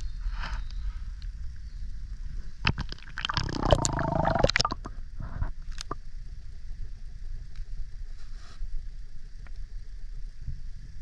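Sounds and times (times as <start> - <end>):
muffled underwater rumble: 0.0 - 11.0
water splashing and gurgling: 2.6 - 4.9
faint ticks: 7.4 - 7.8, 8.4 - 9.8.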